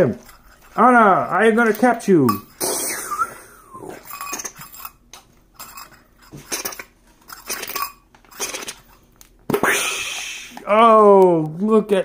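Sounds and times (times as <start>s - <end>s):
metal tin clicking and clinking: 1.7s - 2.6s, 4.0s - 5.0s, 5.6s - 8.9s.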